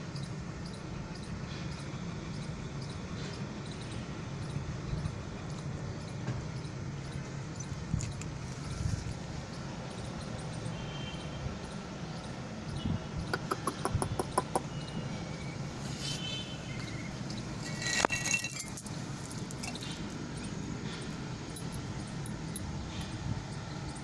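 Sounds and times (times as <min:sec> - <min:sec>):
collar chain clinking: 0:07.6 - 0:08.4, 0:16.7 - 0:23.5.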